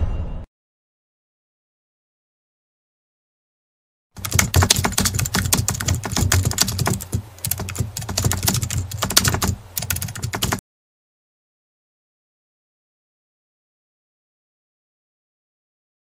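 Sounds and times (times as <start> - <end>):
keyboard typing clicks: 4.2 - 10.6.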